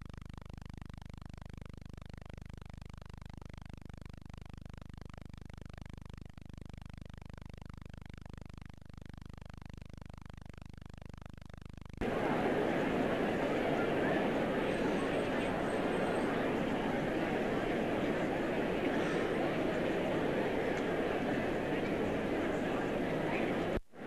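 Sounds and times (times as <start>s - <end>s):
low electrical hum: 0.0s - 24.0s
constant hiss: 11.1s - 24.0s.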